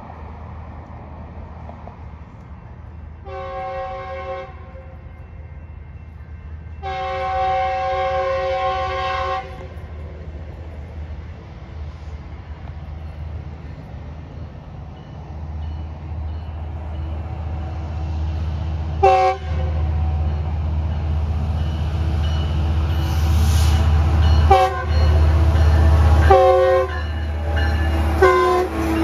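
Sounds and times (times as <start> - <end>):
diesel locomotive engine rumble: 0.0 - 29.0
multi-chime train horn blasts: 3.2 - 9.8, 19.0 - 20.6, 21.8 - 29.0.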